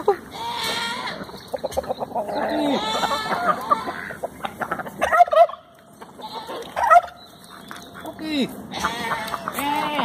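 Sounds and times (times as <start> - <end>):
chickens clucking: 0.0 - 10.0.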